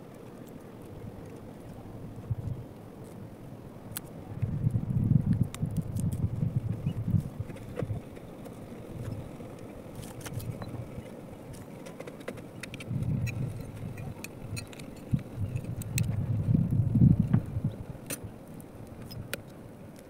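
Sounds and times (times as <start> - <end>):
low fire rumble: 0.0 - 20.0
wood fire crackling and popping: 3.9 - 20.0.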